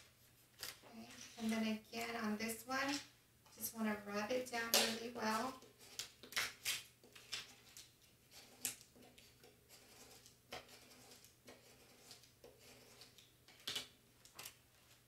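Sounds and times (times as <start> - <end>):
scraper scratching on vinyl: 9.7 - 13.1.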